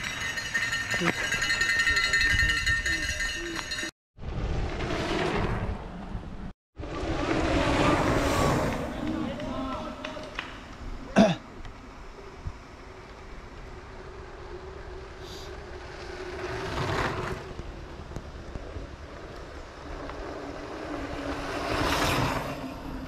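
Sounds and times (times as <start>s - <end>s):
bike tyres rolling on trail: 6.8s - 11.0s, 11.6s - 23.0s.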